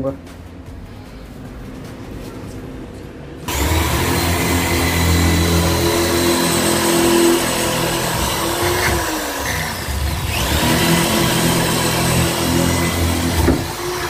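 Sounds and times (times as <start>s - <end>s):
electric drill boring into wood: 3.5s - 14.0s.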